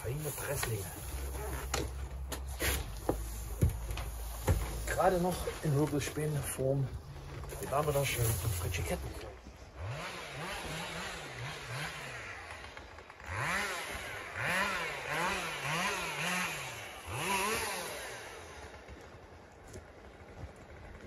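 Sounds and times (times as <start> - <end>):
small engine revving in blips: 9.7 - 19.0.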